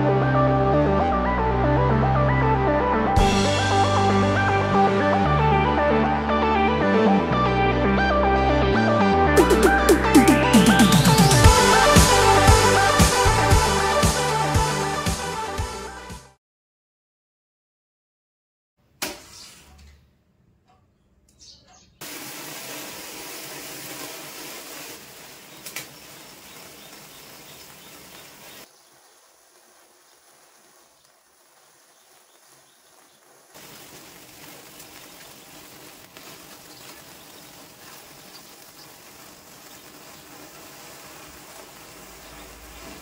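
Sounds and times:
firework fizzing hiss: 9.4s - 14.8s, 22.0s - 43.0s.

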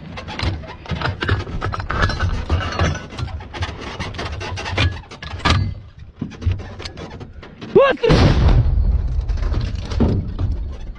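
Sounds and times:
rubbing: 0.0s - 8.0s.

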